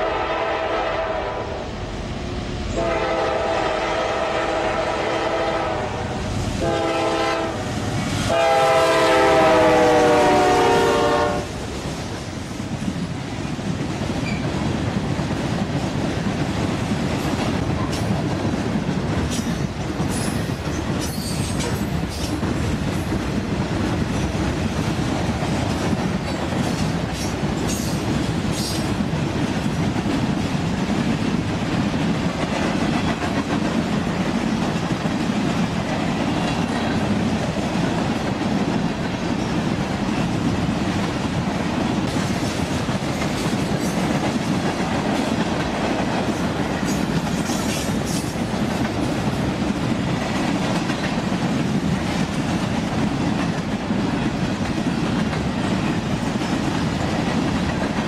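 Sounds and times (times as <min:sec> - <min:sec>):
locomotive horn blasts: 0:00.0 - 0:01.6, 0:02.8 - 0:07.7, 0:08.3 - 0:11.6
train rumbling past: 0:00.0 - 0:58.0.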